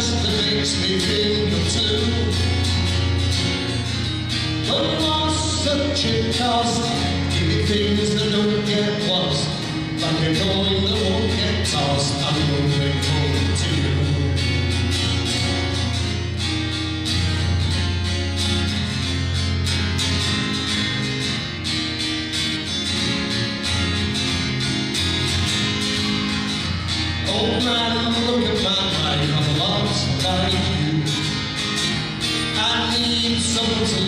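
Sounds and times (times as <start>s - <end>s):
man singing: 0.0s - 2.9s, 4.6s - 14.9s, 27.2s - 31.6s, 32.3s - 34.0s
acoustic guitar: 0.0s - 34.0s.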